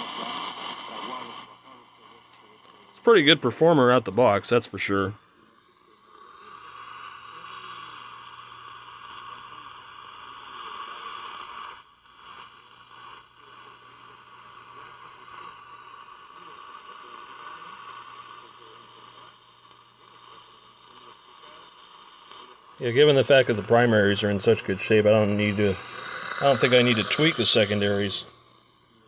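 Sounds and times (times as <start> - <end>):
radio static hiss: 0.0 - 29.0
low hum: 18.0 - 29.0.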